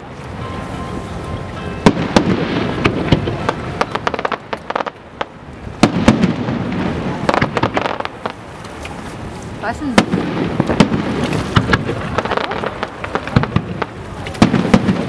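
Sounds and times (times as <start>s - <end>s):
fireworks bursting: 1.7s - 15.0s.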